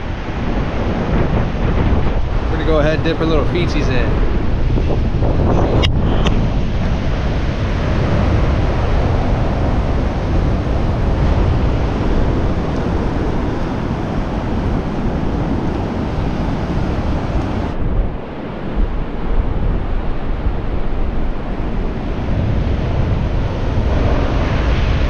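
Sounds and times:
surf washing up beach: 0.0 - 25.0
wind buffeting microphone: 0.0 - 25.0.

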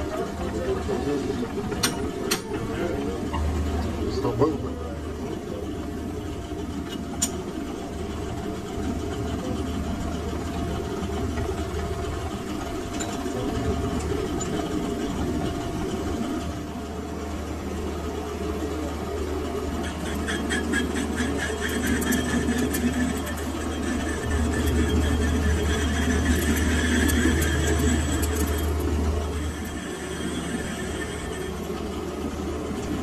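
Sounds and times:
lathe humming and whining: 0.0 - 33.0
lathe chuck spinning up: 19.8 - 33.0
fast fine ticking rattle: 21.3 - 31.8.

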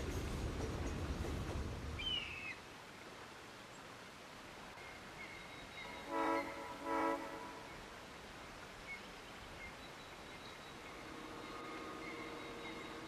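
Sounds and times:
passing train rumble: 0.0 - 2.4, 4.8 - 8.0, 9.7 - 13.0
bird chirp: 2.0 - 2.6, 8.8 - 13.0
locomotive horn blasts: 6.0 - 7.7.

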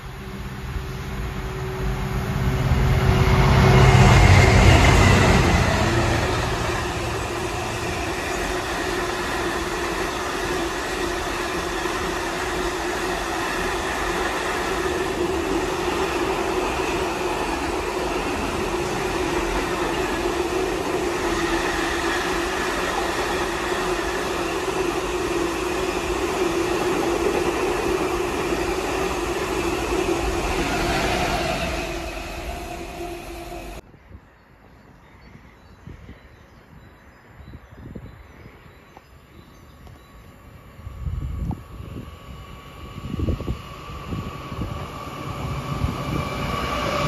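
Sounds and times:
steady drone: 0.0 - 33.8
freight train wheels rattling on rails: 1.6 - 33.8.

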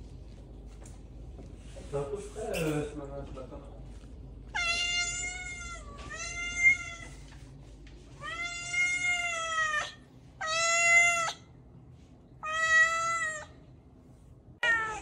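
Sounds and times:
cat meowing: 4.5 - 7.2, 8.2 - 11.5, 12.4 - 13.6, 14.6 - 15.0.

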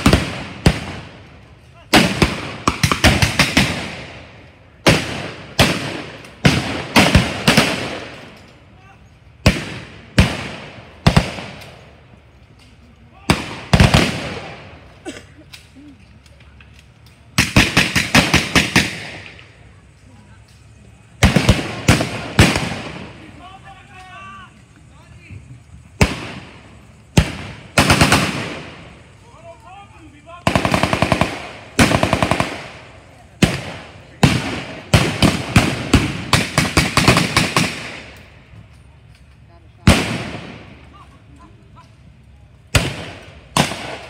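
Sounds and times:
blank gunshots: 0.0 - 1.1, 1.9 - 4.2, 4.8 - 8.2, 9.4 - 11.6, 13.3 - 14.8, 17.4 - 19.4, 21.2 - 23.3, 26.0 - 28.8, 30.4 - 38.1, 39.8 - 40.7, 42.7 - 44.0
rapid automatic gunfire: 17.4 - 19.2, 27.2 - 28.7, 30.4 - 32.8, 33.4 - 37.9.

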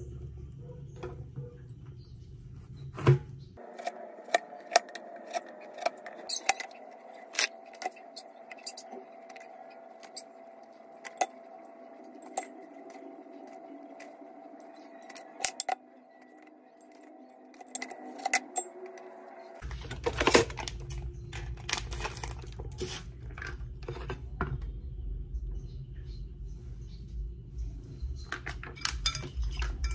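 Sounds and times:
metal spoon clinking ceramic bowl: 28.8 - 29.9.

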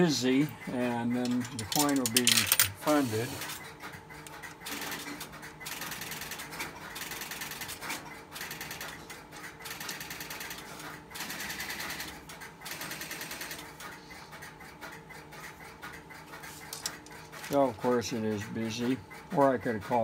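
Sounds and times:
payphone clicking and rattling: 0.0 - 13.9, 16.3 - 20.0.

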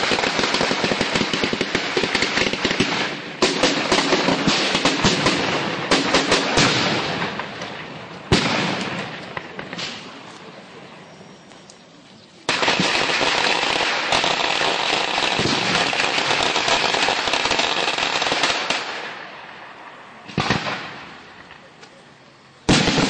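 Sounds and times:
sharp bangs: 0.0 - 10.3, 12.5 - 19.6, 20.2 - 21.7, 22.7 - 23.0
firecrackers crackling: 0.0 - 23.0.

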